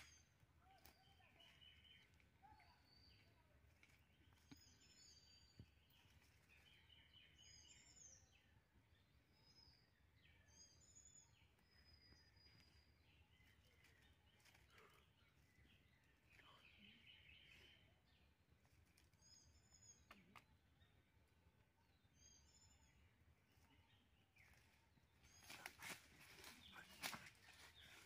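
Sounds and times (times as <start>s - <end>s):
faint bird chirps and whistles: 0.0s - 18.0s.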